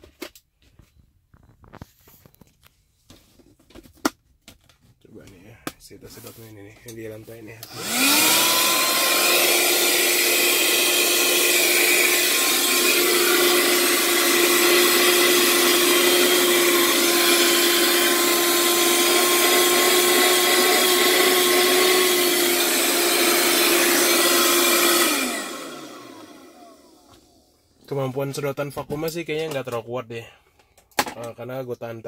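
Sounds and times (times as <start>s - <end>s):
handheld vacuum cleaner running: 7.6s - 27.6s.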